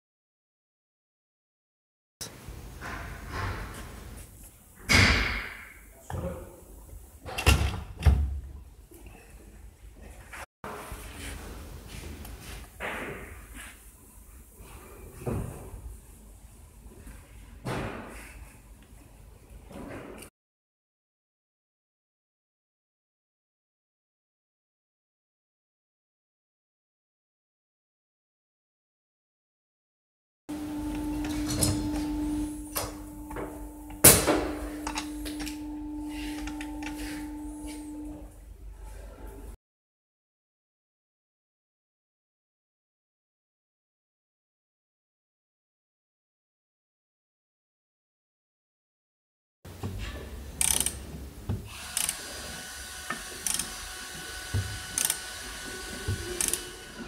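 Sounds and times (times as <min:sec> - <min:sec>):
steady hum: 0:30.5 - 0:38.8
ratchet handle ratcheting: 0:50.6 - 0:51.0.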